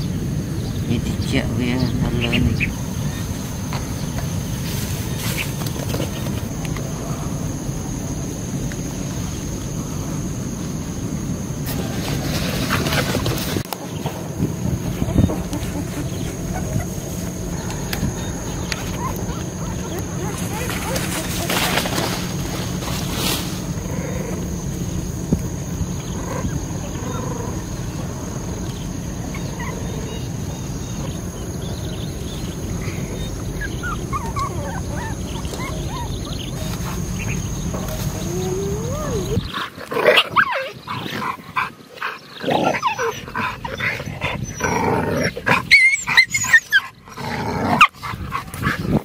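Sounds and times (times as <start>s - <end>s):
faint whines: 0.0s - 41.1s
low wind rumble: 0.0s - 49.0s
dogs growling and barking: 10.4s - 49.0s.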